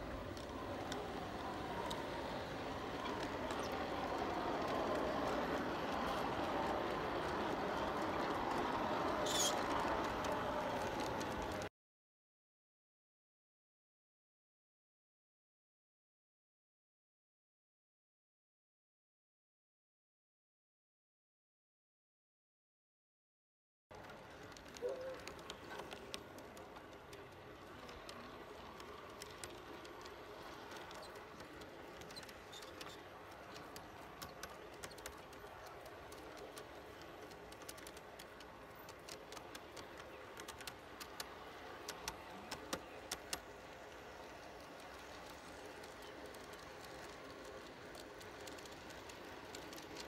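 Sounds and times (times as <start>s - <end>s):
faint rolling noise: 0.0s - 11.7s, 23.9s - 50.0s
model train wheels clicking: 0.0s - 11.7s, 23.9s - 50.0s.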